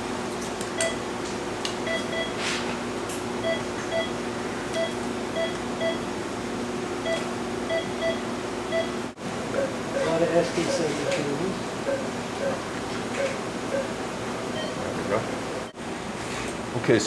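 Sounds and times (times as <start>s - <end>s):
equipment hum: 0.0s - 17.0s
patient monitor beeps: 1.9s - 2.4s, 3.4s - 4.1s, 4.8s - 6.1s, 7.0s - 12.6s, 13.2s - 13.9s, 14.5s - 14.9s.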